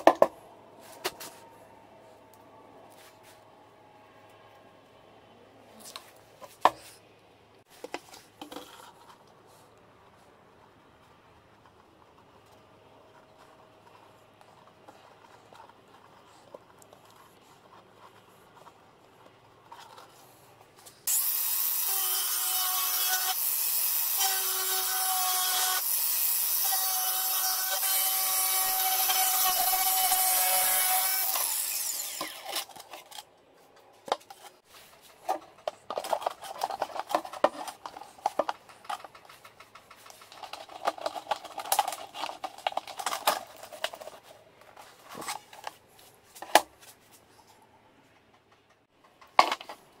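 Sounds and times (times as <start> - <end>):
angle grinder cutting plastic: 21.0 - 33.3
handling clicks and rustling: 32.6 - 47.2.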